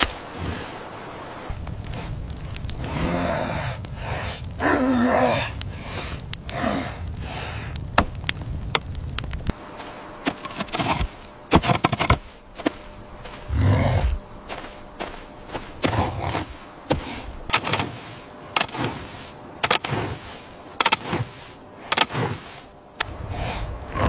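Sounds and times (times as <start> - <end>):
low grunting voice: 4.6 - 5.6
sharp scrapes and knocks: 10.2 - 12.8, 15.6 - 22.7.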